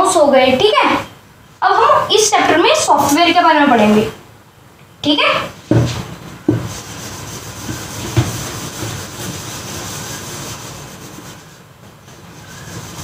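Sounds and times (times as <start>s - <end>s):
knocks on whiteboard: 5.7s - 6.8s, 8.0s - 9.0s
duster scrubbing a whiteboard: 5.7s - 13.0s.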